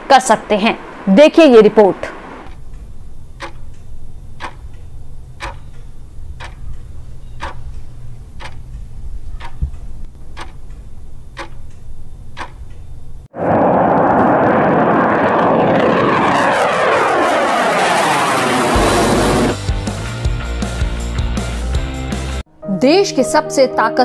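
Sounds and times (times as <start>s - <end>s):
low steady hum: 0.0s - 13.3s
clock ticking: 2.5s - 13.0s.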